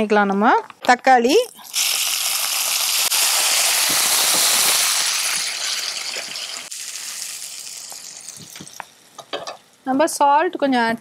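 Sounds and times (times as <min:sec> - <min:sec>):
tomatoes sizzling in hot oil: 0:01.4 - 0:10.0.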